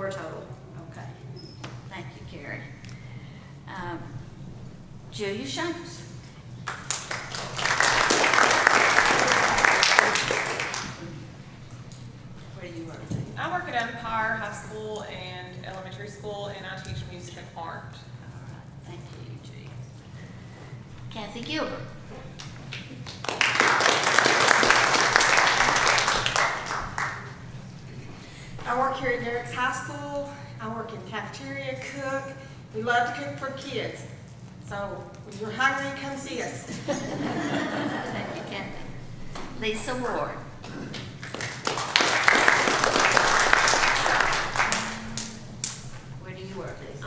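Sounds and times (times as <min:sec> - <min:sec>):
congregation applauding: 0:06.6 - 0:11.2, 0:22.7 - 0:27.4, 0:41.0 - 0:45.8.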